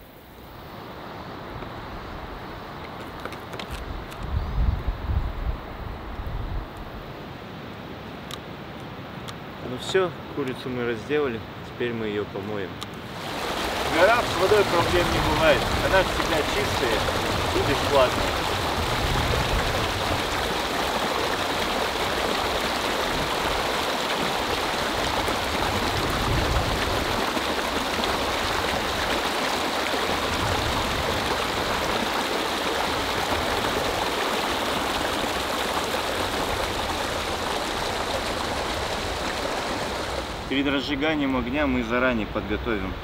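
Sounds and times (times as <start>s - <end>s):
stream rushing over stones: 12.9s - 43.0s.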